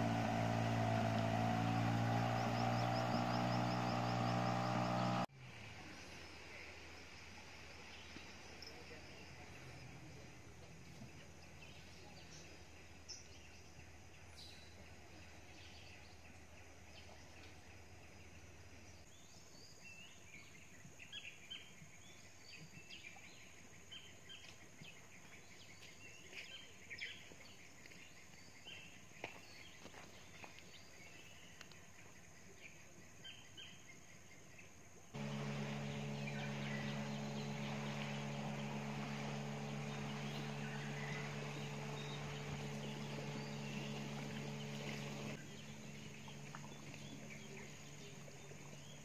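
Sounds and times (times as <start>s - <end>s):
birds chirping: 0.0s - 5.3s, 35.2s - 49.0s
low steady hum: 0.0s - 19.3s, 35.2s - 49.0s.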